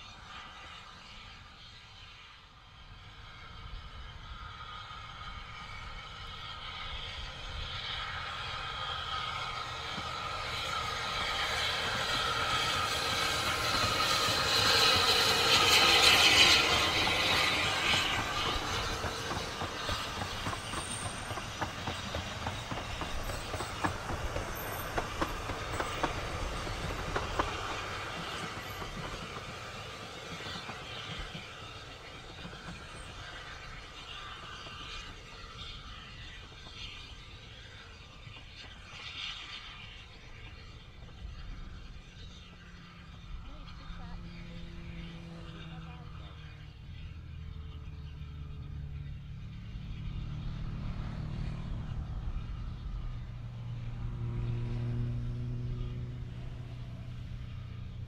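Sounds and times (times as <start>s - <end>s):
steam train passing: 0.0s - 58.0s
coaches clicking over rail joints: 9.0s - 43.0s.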